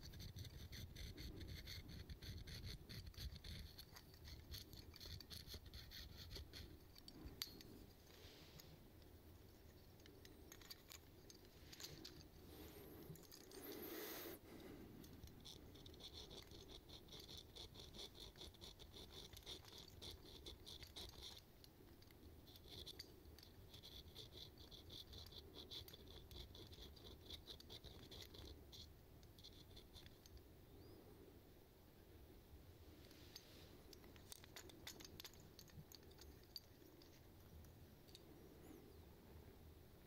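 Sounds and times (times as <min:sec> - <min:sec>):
handling rustle: 0:06.4 - 0:15.4, 0:32.9 - 0:38.8.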